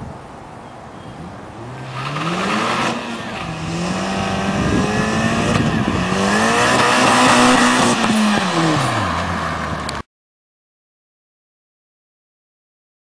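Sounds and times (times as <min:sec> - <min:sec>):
car engine revving past: 0:01.5 - 0:10.0.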